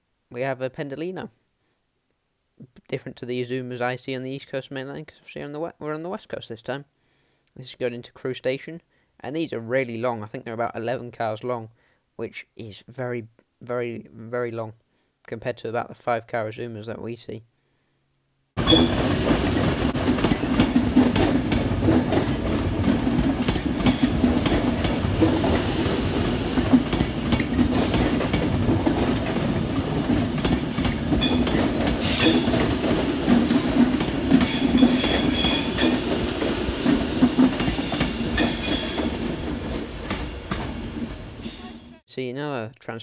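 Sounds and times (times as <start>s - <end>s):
train wheels clacking on rails: 18.6s - 41.6s.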